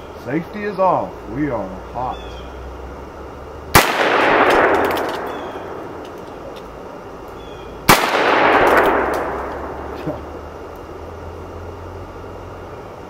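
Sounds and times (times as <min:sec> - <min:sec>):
revolver shots with echo: 0:07.9 - 0:10.0.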